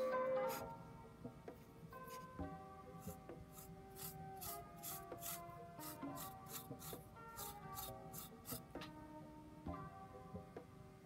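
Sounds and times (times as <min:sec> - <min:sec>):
soft background music: 0:00.0 - 0:11.0
metal tool scraping clay: 0:02.0 - 0:02.3, 0:03.0 - 0:08.7.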